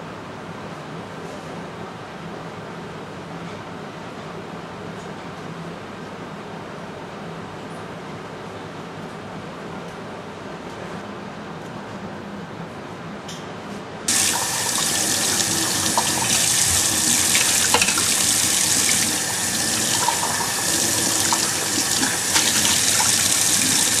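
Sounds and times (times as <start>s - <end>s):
tap water splashing into sink: 14.1s - 24.0s.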